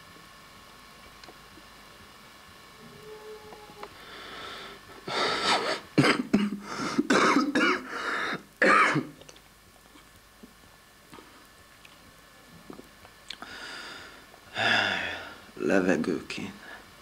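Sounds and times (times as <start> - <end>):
man coughing: 5.5 - 7.9, 8.6 - 9.1.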